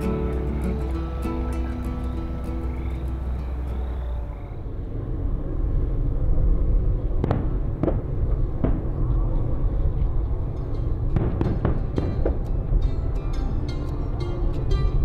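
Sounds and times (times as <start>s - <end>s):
fireworks booming: 6.4s - 10.1s, 11.1s - 12.5s
sharp fireworks cracks: 7.1s - 10.4s, 11.1s - 12.8s.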